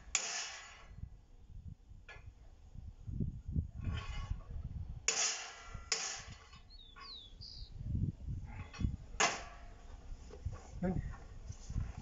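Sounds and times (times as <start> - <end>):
bird chirping: 6.5 - 7.8.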